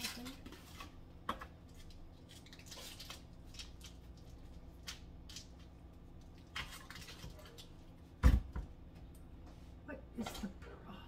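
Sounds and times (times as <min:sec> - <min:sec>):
foil wrapper crinkling: 0:01.7 - 0:07.8.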